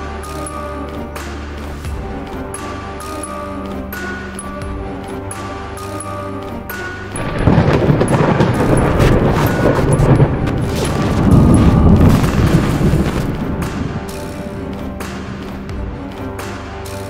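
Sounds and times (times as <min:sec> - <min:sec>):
background music: 0:00.0 - 0:17.0
rumbling thunder: 0:07.2 - 0:14.6.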